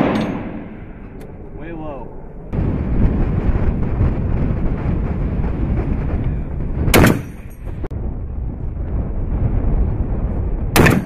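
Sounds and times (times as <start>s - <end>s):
low background rush: 0.0s - 11.0s
rifle shots: 6.9s - 7.4s, 10.8s - 11.0s.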